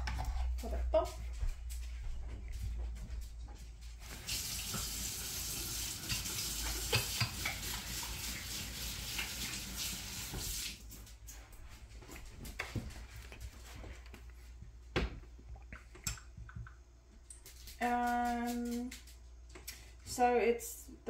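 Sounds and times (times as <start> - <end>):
water running from tap: 4.0 - 10.9.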